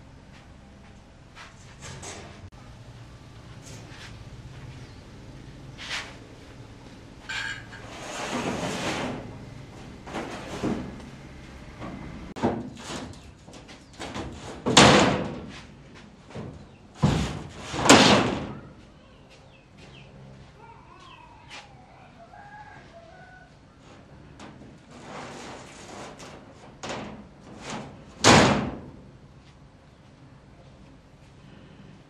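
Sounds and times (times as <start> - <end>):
metal sheets banging and scraping: 1.5 - 2.5, 7.2 - 15.7, 16.3 - 18.6, 24.0 - 29.0.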